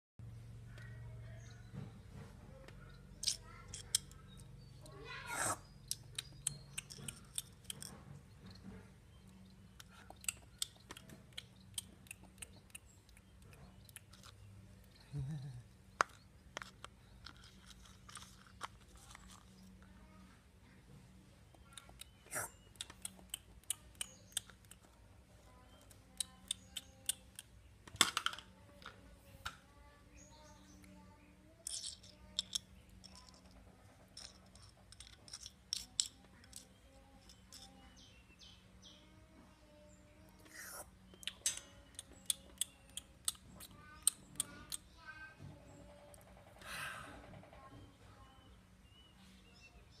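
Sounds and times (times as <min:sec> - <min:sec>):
squeaky chirps: 0:02.8 - 0:15.1, 0:21.6 - 0:24.8
eating clicks and crunches: 0:03.2 - 0:04.5, 0:05.4 - 0:15.2, 0:15.9 - 0:20.0, 0:21.5 - 0:25.0, 0:25.8 - 0:28.5, 0:31.6 - 0:37.7, 0:40.4 - 0:44.9.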